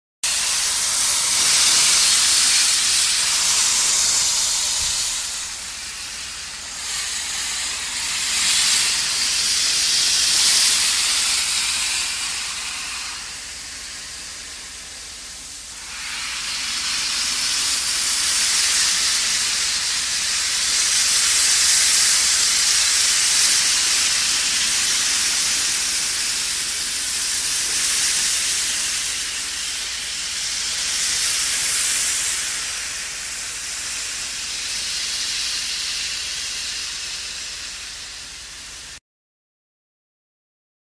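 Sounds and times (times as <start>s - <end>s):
steam locomotive hissing: 0.2s - 39.0s.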